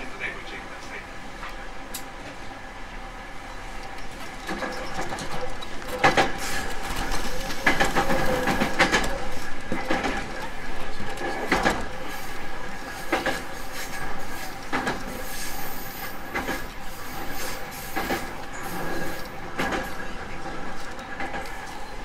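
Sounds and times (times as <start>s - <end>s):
train rumble: 0.0s - 22.0s
wheels clicking over rail joints: 3.4s - 22.0s.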